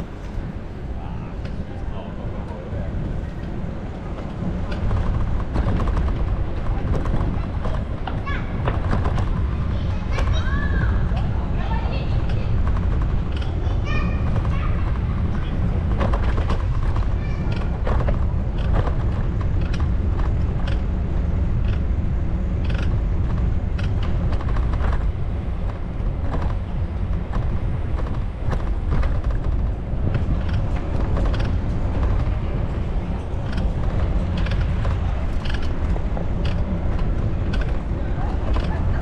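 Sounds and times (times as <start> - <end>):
wind buffeting microphone: 0.0 - 39.0
bicycle clicks and rattles: 12.2 - 39.0.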